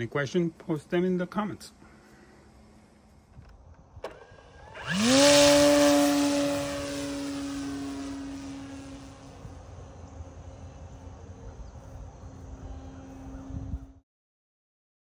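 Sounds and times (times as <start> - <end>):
model plane motor and propeller: 2.1 - 11.3.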